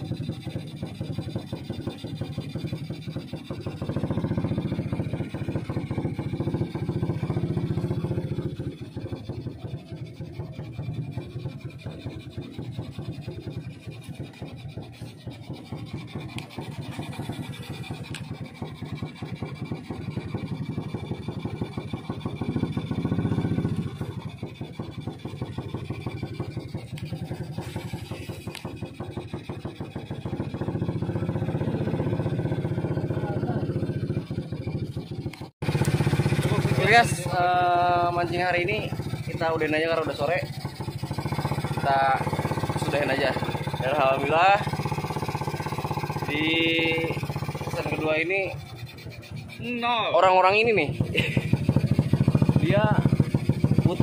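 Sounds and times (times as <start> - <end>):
small boat engine running: 0.0 - 54.0.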